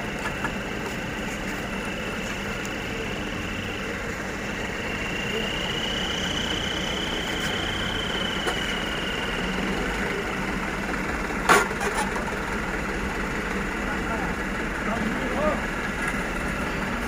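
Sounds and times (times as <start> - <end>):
faint high whine: 0.0 - 10.3
truck engine idling: 0.0 - 17.0.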